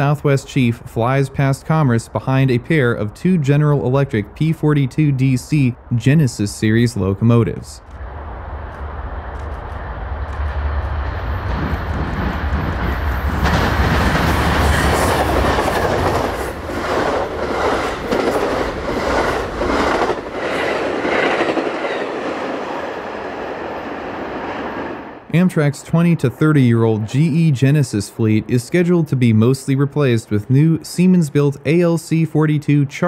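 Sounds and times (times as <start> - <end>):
diesel locomotive engine rumble: 0.0 - 33.0
train wheels clattering over rail joints: 11.5 - 22.4.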